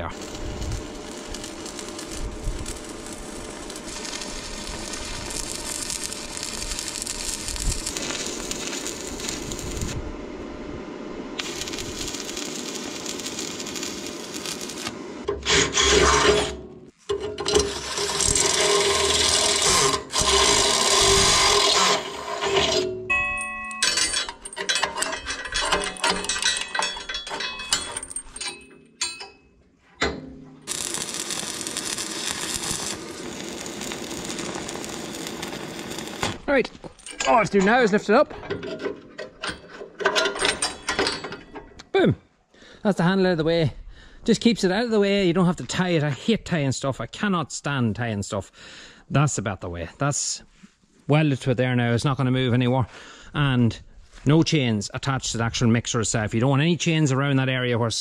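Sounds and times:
drill boring into steel: 0.0 - 9.9, 11.4 - 16.6, 17.5 - 22.9, 30.7 - 36.4
arc welding crackling: 0.0 - 16.8, 17.5 - 22.9, 30.6 - 38.2
chain clinking on metal: 23.1 - 29.5, 36.8 - 37.7, 39.4 - 41.7.

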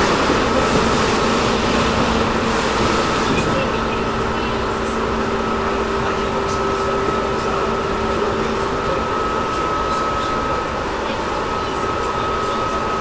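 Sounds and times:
train wheels rumbling on rail: 0.0 - 13.0
high motor whine: 3.7 - 13.0.

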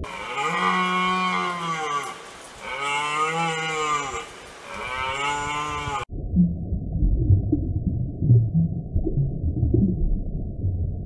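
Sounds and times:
deer lowing calls: 0.0 - 6.0.

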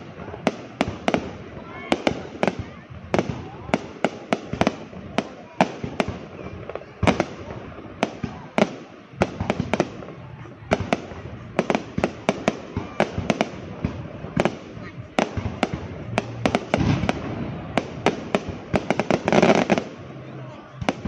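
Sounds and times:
fireworks bangs: 0.0 - 21.0
fireworks crackle: 0.0 - 21.0.

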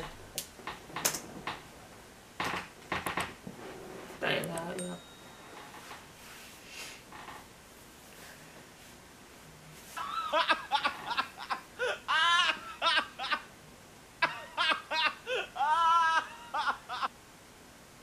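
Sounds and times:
person laughing in squeals: 10.0 - 13.5, 14.2 - 17.1.

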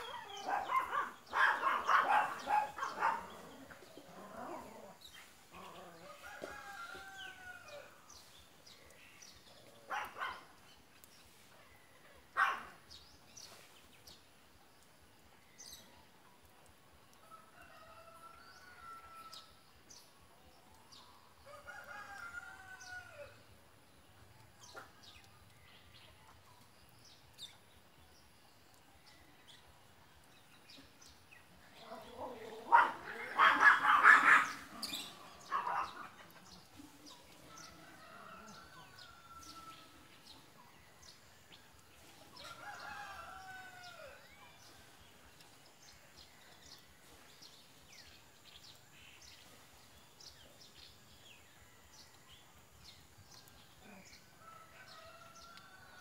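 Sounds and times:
rooster crowing: 6.0 - 7.9, 37.5 - 40.1, 42.4 - 44.2.

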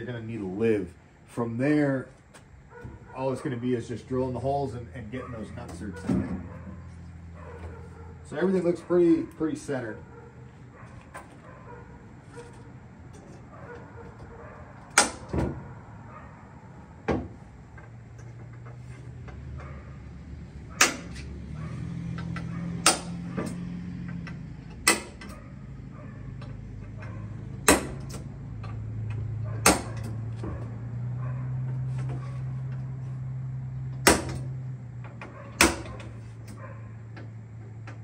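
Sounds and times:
sharp metal knocks: 14.9 - 15.6, 20.7 - 21.3, 22.1 - 25.4, 26.4 - 30.6, 34.0 - 36.2.

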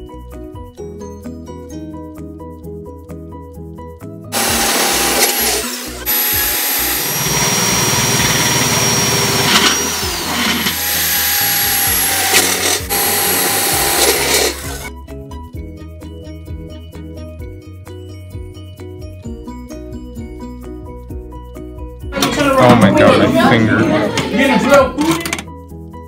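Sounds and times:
soft background music: 0.0 - 26.0
power drill boring through metal: 4.3 - 14.9.

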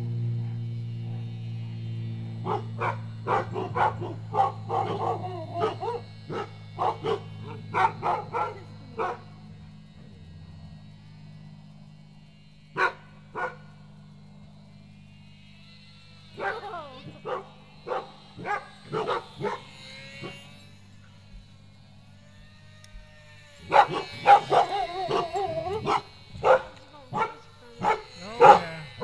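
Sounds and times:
steady low hum: 0.0 - 29.0
dogs barking and yipping: 2.4 - 9.4, 12.8 - 13.9, 16.2 - 20.6, 23.5 - 29.0.

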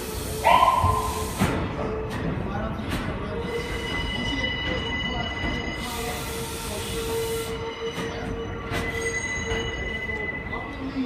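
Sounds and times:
hiss: 0.0 - 1.6
train wheels rumbling on rails: 0.0 - 11.0
wheel squeal: 7.8 - 10.6.

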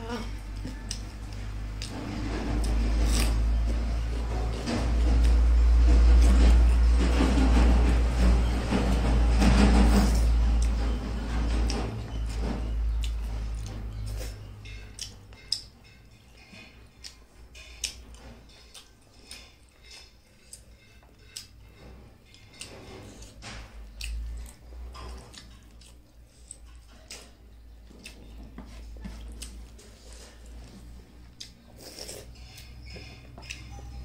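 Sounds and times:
chewing and lip smacking: 22.6 - 34.0.

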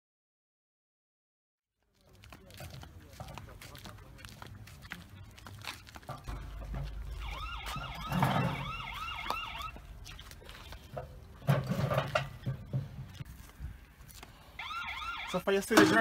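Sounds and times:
low rumble: 6.2 - 14.0
electronic siren yelping: 7.0 - 10.4, 14.6 - 15.4.

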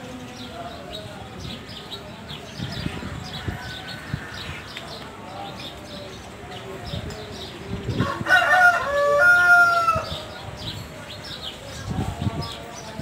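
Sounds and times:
rooster crowing: 8.0 - 10.1.

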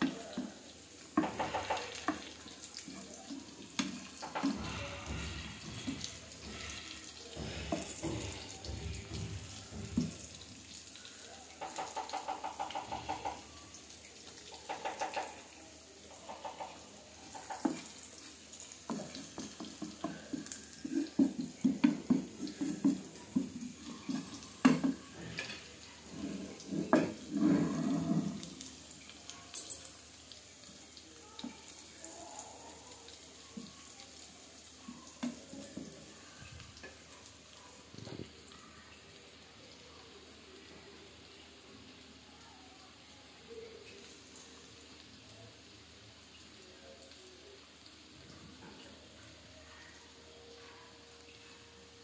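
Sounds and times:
fish sizzling in oil: 0.0 - 52.0
wooden spatula scraping pan: 3.7 - 9.9.

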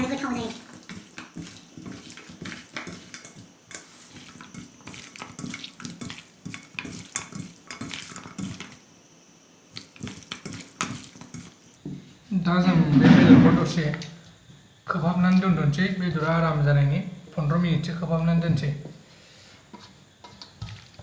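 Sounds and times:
raw chicken squelching in metal bowl: 0.1 - 8.8.

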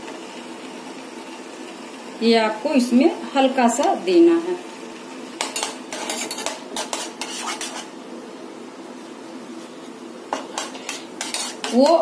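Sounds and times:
spoon scraping metal pan: 5.4 - 7.9, 10.3 - 12.0.

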